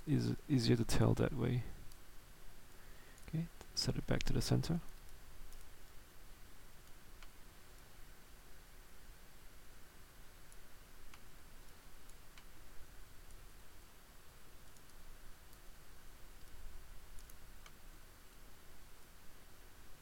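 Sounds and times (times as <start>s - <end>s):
room hum and hiss: 0.0s - 20.0s
computer mouse clicks: 3.2s - 5.7s, 14.6s - 15.7s, 16.4s - 18.4s.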